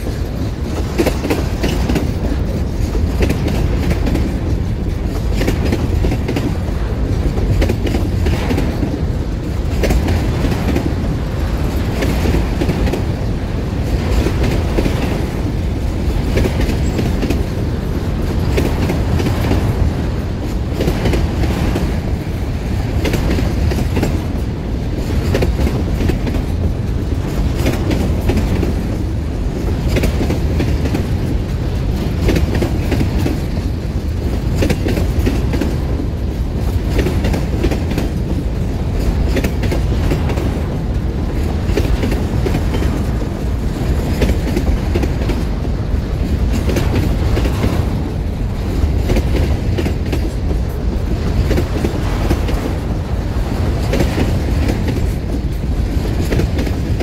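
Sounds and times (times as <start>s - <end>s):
train wagons rumbling: 0.0s - 57.0s
wheels clacking over rail joints: 0.0s - 57.0s.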